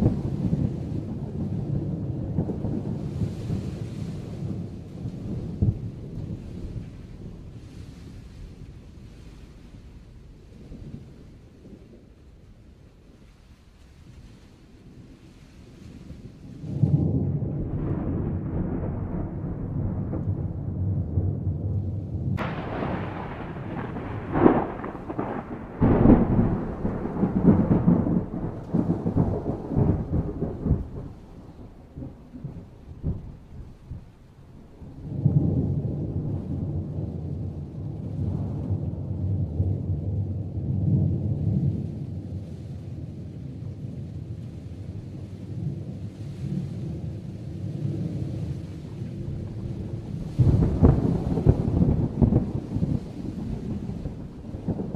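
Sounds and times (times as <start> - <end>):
thunder crack: 0.0 - 7.6, 16.1 - 42.4, 47.0 - 54.9
thunder rumbling: 0.0 - 54.9.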